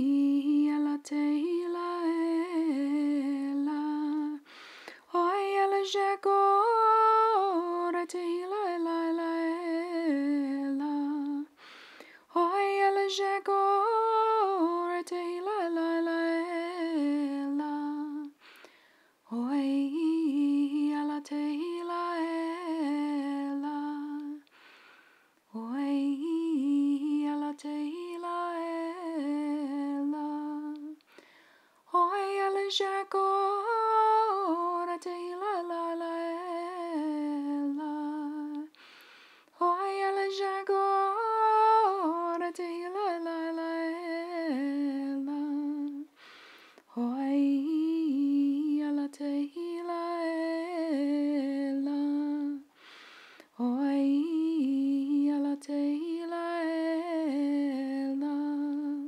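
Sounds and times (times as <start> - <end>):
woman breathing: 4.4 - 5.1, 11.5 - 12.3, 18.4 - 19.2, 24.4 - 25.4, 31.0 - 31.9, 38.7 - 39.6, 46.1 - 46.9, 52.7 - 53.6.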